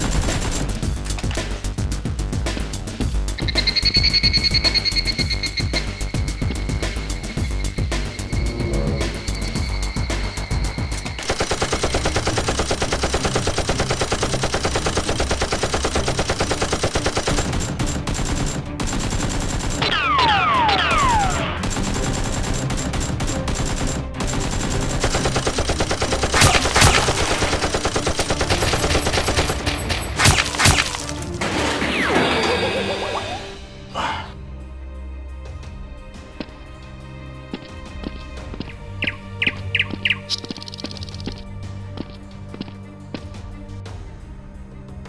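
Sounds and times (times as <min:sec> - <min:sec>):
rapid automatic gunfire: 0:00.0 - 0:00.8, 0:11.2 - 0:19.9, 0:20.9 - 0:31.0
falling whistle-like tones: 0:03.4 - 0:11.1.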